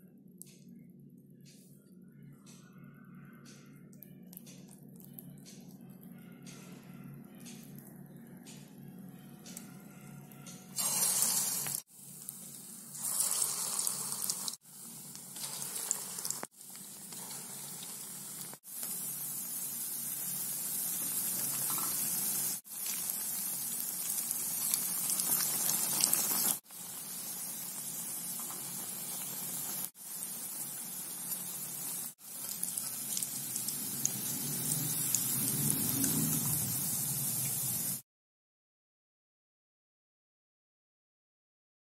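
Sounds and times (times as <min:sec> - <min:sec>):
food sizzling in hot oil: 0:10.8 - 0:38.0.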